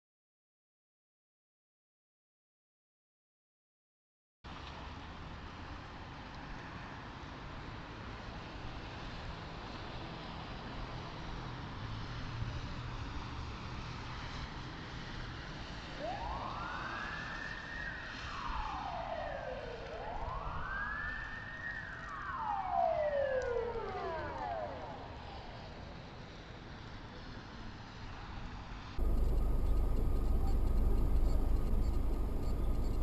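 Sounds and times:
wailing siren: 15.8s - 26.1s, 29.0s - 33.0s
engine and traffic hum: 29.0s - 33.0s.

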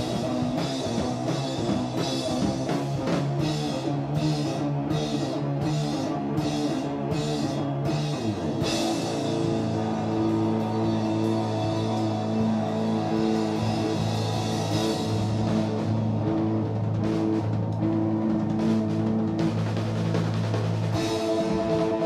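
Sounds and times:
drum kit playing: 0.0s - 22.0s
electric guitar low chords: 0.0s - 22.0s.

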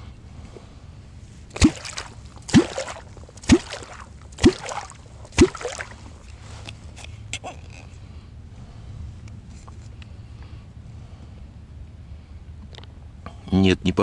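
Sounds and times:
wooden tool plopping into water: 1.5s - 6.0s.

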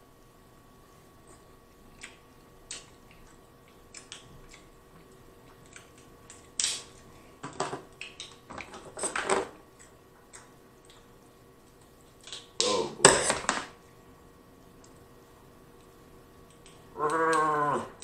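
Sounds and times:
crab shell cracking: 11.7s - 12.7s.

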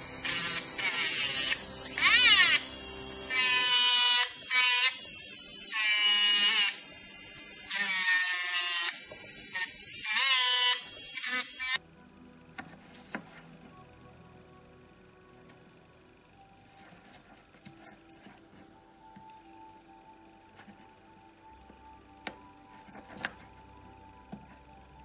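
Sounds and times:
rotary tool cutting metal: 0.0s - 11.8s.

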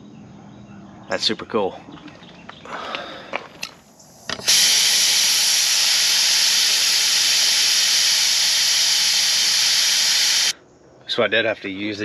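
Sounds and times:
compressed air hissing: 3.9s - 10.6s.

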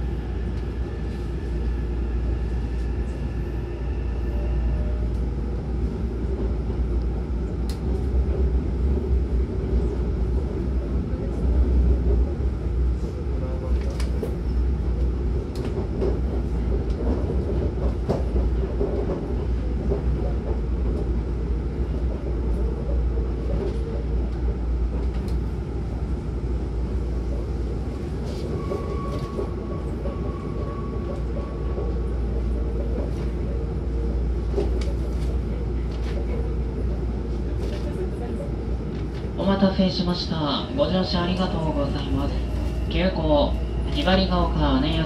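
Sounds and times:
train wheels rumbling on rails: 0.0s - 45.0s.

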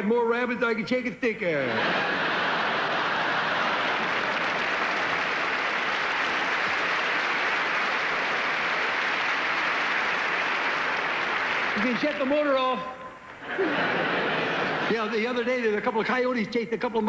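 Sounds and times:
audience applauding: 1.9s - 15.0s.

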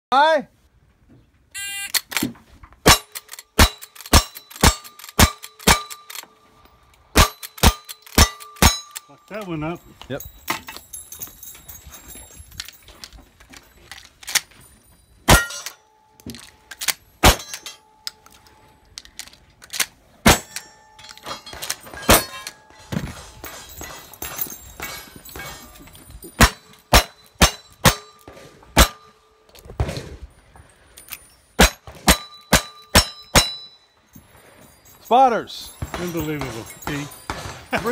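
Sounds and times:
steel targets ringing: 2.8s - 11.8s, 15.1s - 18.9s, 20.2s - 29.5s, 31.3s - 34.1s, 34.7s - 37.9s.

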